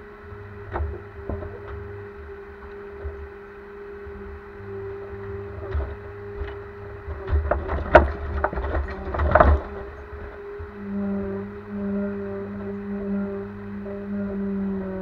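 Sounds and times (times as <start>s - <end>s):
forestry machine engine humming: 0.0s - 15.0s
knocks and clatter of logs: 0.6s - 2.0s, 5.1s - 10.8s.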